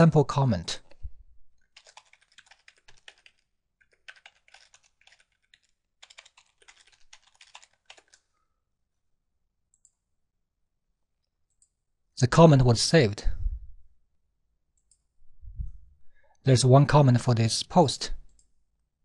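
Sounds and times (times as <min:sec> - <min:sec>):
keyboard typing: 0:01.6 - 0:08.3.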